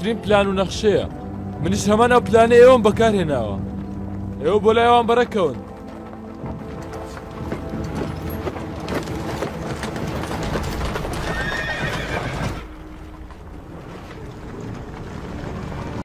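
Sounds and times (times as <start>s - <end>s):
horse hooves clopping: 2.8s - 16.0s
horse neighing: 11.0s - 12.8s.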